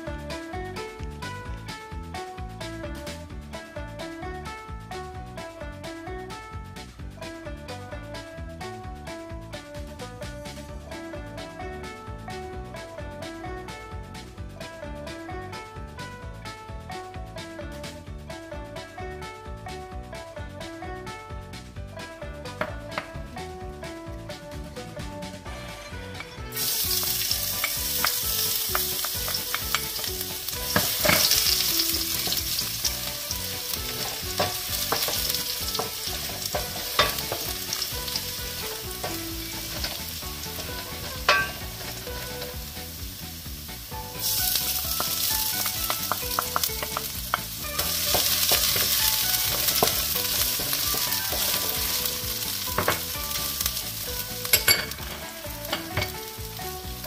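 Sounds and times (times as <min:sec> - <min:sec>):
garlic sizzling in hot oil: 0:26.5 - 0:57.0
wooden spatula scraping metal: 0:33.9 - 0:42.5.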